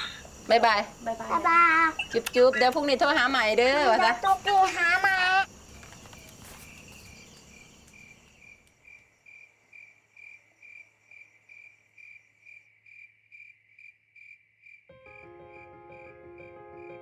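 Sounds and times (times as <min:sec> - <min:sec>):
cricket chirping: 0:00.0 - 0:17.0.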